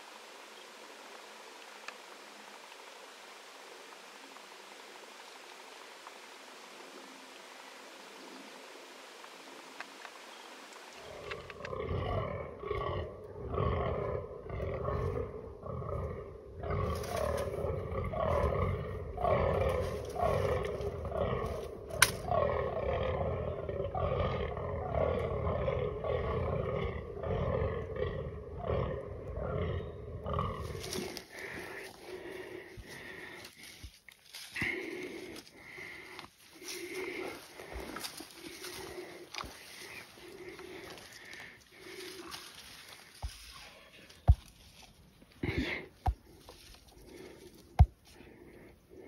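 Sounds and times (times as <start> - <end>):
deer groaning calls: 11.0 - 33.8, 34.6 - 43.4.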